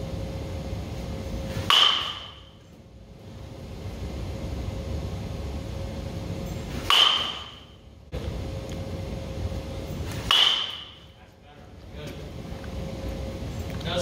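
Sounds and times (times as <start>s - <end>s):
baseball bat pinging ball: 1.6s - 2.6s, 6.8s - 7.8s, 10.2s - 11.1s.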